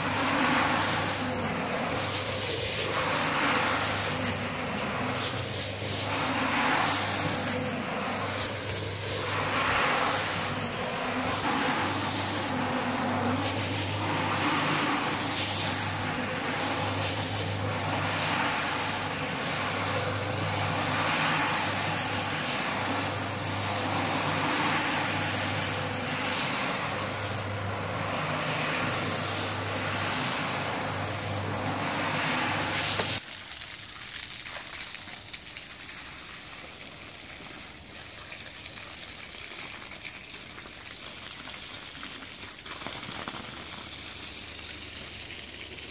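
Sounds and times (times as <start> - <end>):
floor scrubber motor hum: 0.0 - 33.2.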